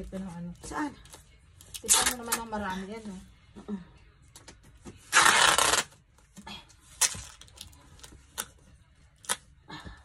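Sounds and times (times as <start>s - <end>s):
packing tape ripping off roll: 1.7s - 2.4s, 5.0s - 6.0s.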